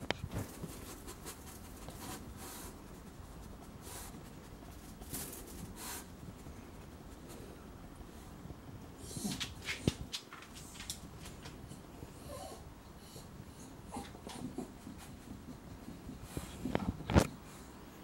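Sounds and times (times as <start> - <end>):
dog sniffing: 0.4 - 6.2.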